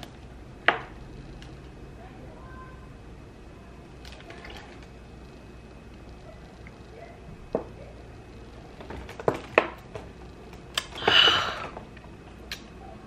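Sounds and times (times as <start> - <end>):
person breathing out harshly: 11.0 - 11.8.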